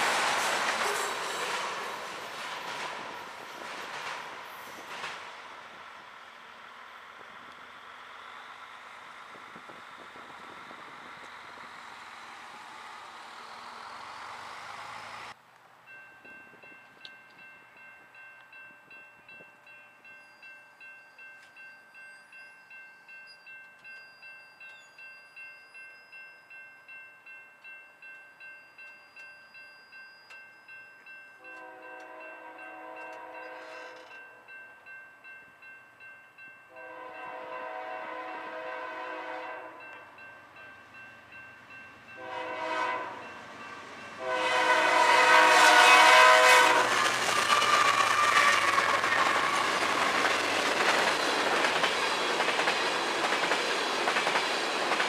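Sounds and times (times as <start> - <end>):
railroad crossing bell ringing: 15.8 - 53.6
locomotive air horn blasts: 31.4 - 34.2, 36.7 - 39.9, 42.2 - 43.3, 44.2 - 49.7.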